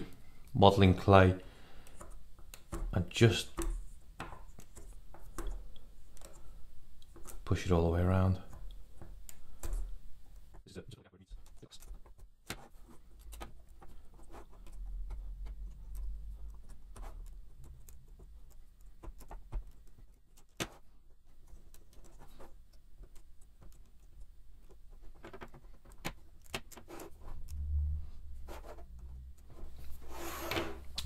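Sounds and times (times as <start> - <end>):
fingers pressing clay clicks: 11.4 - 27.6.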